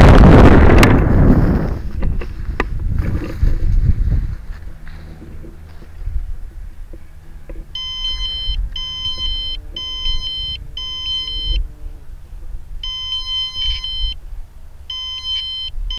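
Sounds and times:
altimeter beeping: 0:06.9 - 0:11.8, 0:12.8 - 0:14.2, 0:14.8 - 0:15.9.

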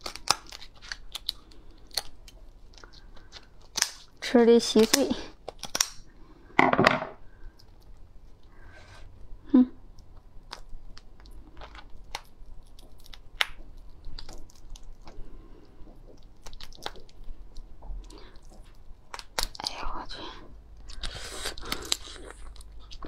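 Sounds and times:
lobster shell cracking: 0:00.0 - 0:06.2, 0:10.0 - 0:19.8.

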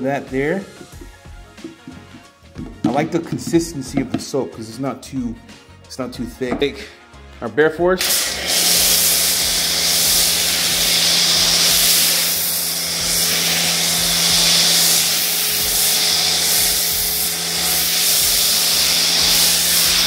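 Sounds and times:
pressure washer foam spray hiss: 0:08.0 - 0:20.0.

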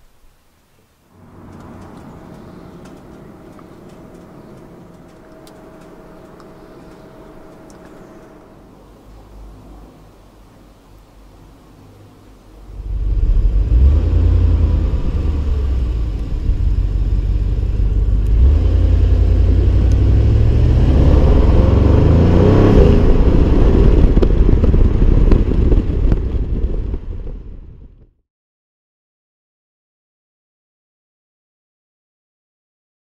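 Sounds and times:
car engine accelerating: 0:01.1 - 0:10.2, 0:12.5 - 0:27.8.

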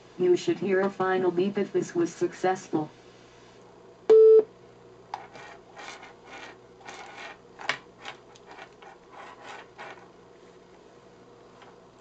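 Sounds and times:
short electronic beep: 0:04.1 - 0:04.5
rubbing and rustling of wires: 0:05.2 - 0:10.6.

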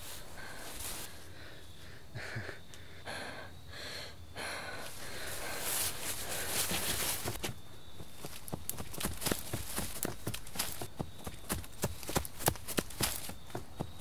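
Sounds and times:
person breathing hard: 0:00.0 - 0:06.9.

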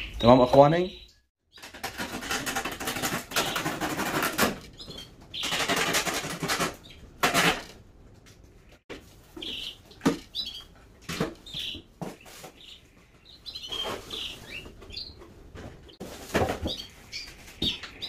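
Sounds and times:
plastic straps scraping cardboard: 0:01.6 - 0:04.6.

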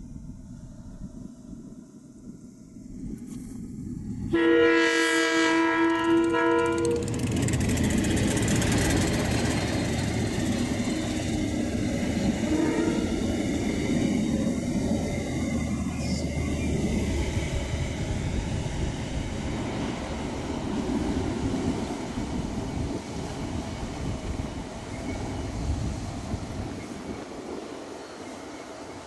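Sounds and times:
train rumbling past on rails: 0:00.0 - 0:29.0
locomotive horn: 0:04.3 - 0:07.2, 0:12.4 - 0:13.2.

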